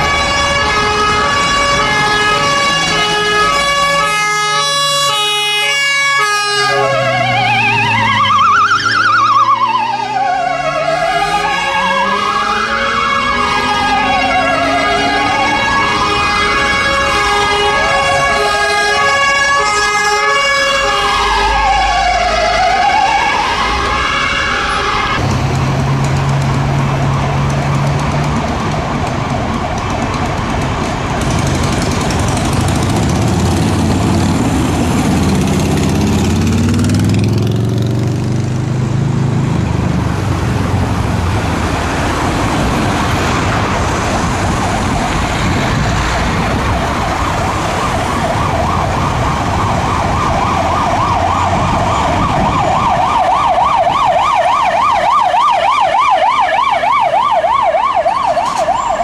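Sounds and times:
siren warbling: 0.0s - 30.4s, 32.8s - 38.2s, 40.5s - 59.0s
traffic engines running: 0.0s - 59.0s
engine pulling away: 5.6s - 18.4s, 21.2s - 54.6s.

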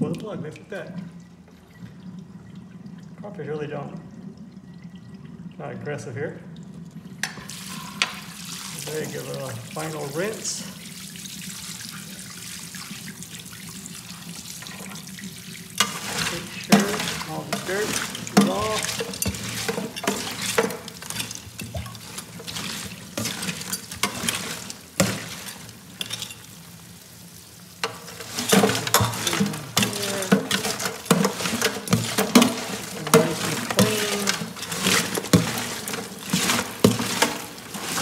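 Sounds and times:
sink sprayer hissing: 7.5s - 10.8s, 15.8s - 26.0s, 27.8s - 38.0s
crawfish shells clattering: 15.8s - 26.4s, 27.8s - 38.0s.

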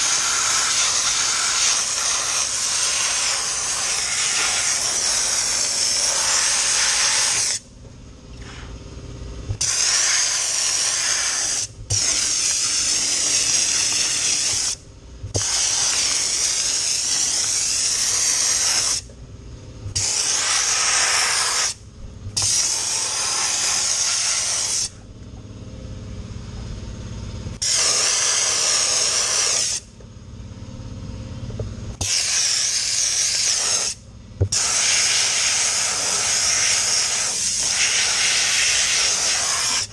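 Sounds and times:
dry ice nozzle hissing: 0.0s - 7.6s, 9.6s - 14.8s, 15.4s - 19.0s, 20.0s - 21.8s, 22.4s - 25.0s, 27.6s - 29.9s, 32.0s - 39.9s.

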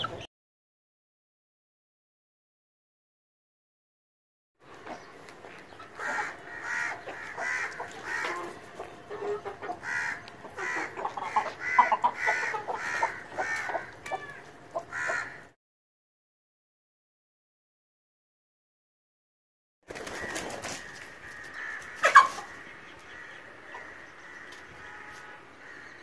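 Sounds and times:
chickens clucking: 0.0s - 0.3s, 4.7s - 15.5s, 19.9s - 25.4s.

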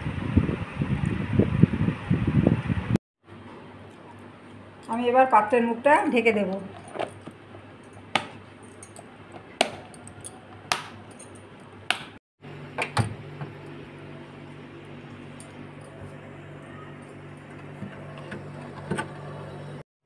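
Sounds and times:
refrigerator hum: 6.8s - 19.8s.

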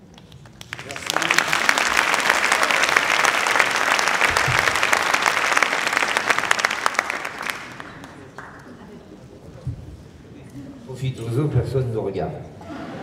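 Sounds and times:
audience applauding: 0.2s - 8.8s.

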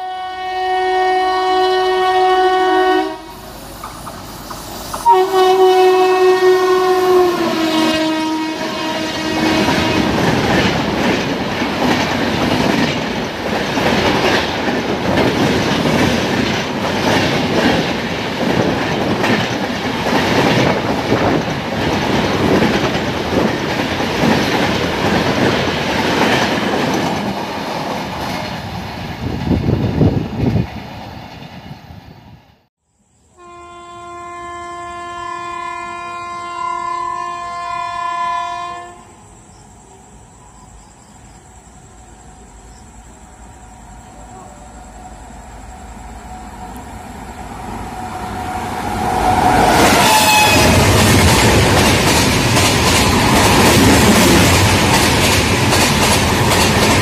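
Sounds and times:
train horn blasts: 0.0s - 3.5s, 5.0s - 10.3s, 33.3s - 39.2s, 48.9s - 51.3s
train wheels clickety-clack: 3.7s - 5.1s, 9.4s - 32.1s, 49.0s - 57.0s.

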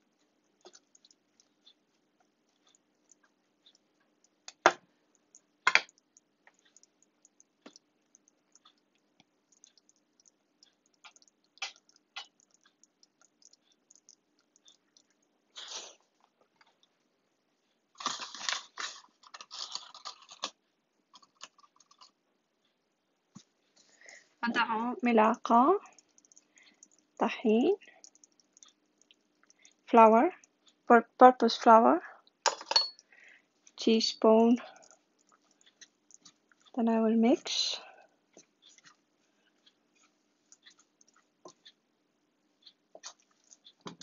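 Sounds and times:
filling simmering with pops: 0.0s - 44.0s.

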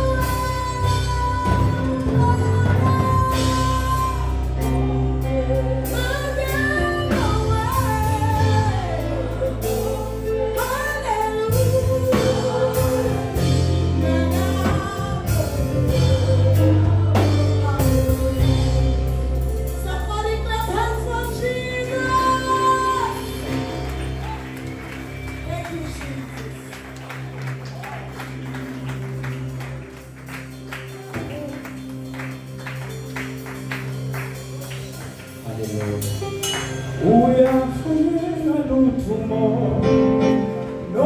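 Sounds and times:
instrumental backing with bass: 0.0s - 41.0s
person singing worship song: 36.9s - 41.0s.

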